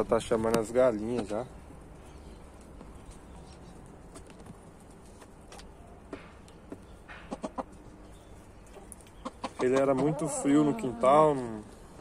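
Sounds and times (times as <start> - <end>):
soft chicken calls: 7.0 - 11.8.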